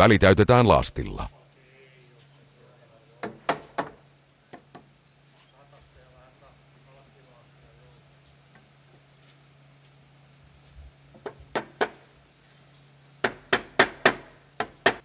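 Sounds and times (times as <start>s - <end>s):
steady low hum: 0.0s - 2.8s
hammer striking wood: 3.2s - 4.8s, 11.2s - 12.0s, 13.2s - 15.0s.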